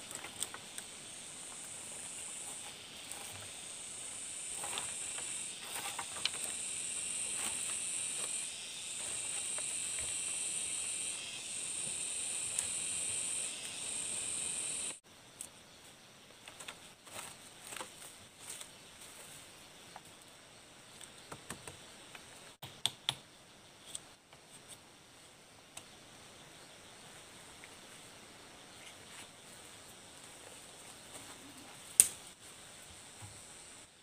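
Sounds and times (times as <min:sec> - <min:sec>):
bamboo stakes clicking and tapping: 0:21.0 - 0:23.2, 0:31.9 - 0:32.3.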